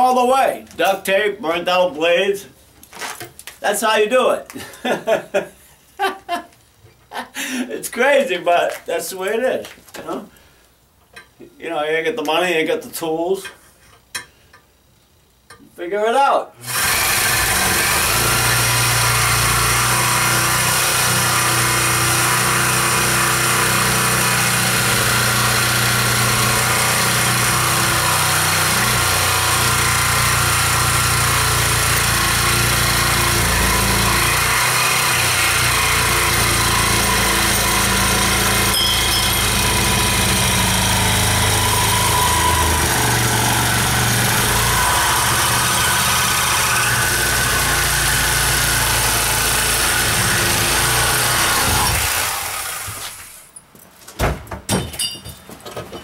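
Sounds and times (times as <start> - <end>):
reciprocating saw cutting metal pipe: 16.6 - 53.2.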